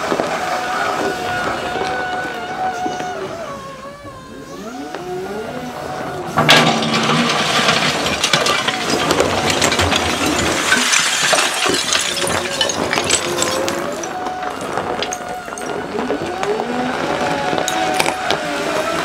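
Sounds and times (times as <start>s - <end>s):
loader engine running: 0.0s - 19.0s
loader bucket crashing into tiles: 6.3s - 15.7s
tile fragments clattering: 6.4s - 15.8s.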